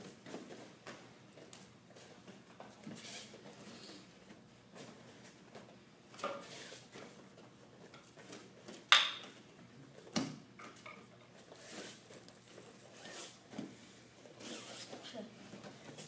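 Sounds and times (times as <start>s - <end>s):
wooden staff knocking: 8.9s - 9.3s.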